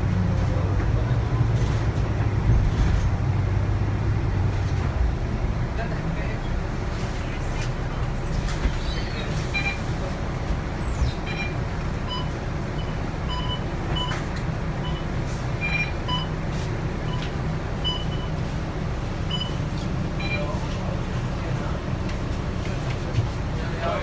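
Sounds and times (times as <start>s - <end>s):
bus diesel engine running: 0.0s - 24.0s
short electronic beeps: 9.5s - 9.9s, 11.3s - 14.2s, 14.8s - 16.3s, 17.0s - 18.3s, 19.3s - 19.6s, 20.2s - 20.6s.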